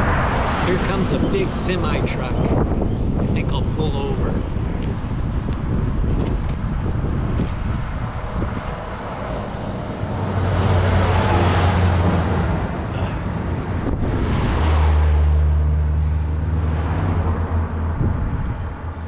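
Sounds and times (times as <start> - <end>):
truck engine drone: 0.0 - 19.0
vehicles passing close by: 0.0 - 19.0.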